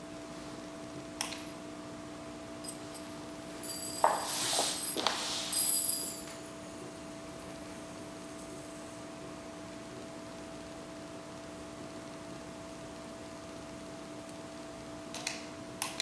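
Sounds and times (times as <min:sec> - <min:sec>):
low electrical hum: 0:00.0 - 0:16.0
crackling electric arc with whine: 0:06.4 - 0:16.0.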